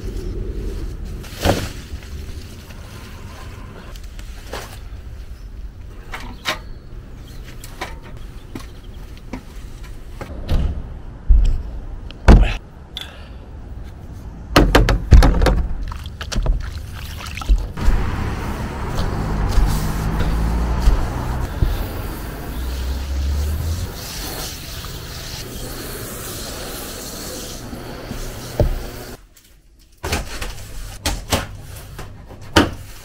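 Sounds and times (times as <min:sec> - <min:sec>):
loud thumps and knocks: 0:14.6 - 0:15.8
brush scrubbing a roof: 0:16.6 - 0:29.2.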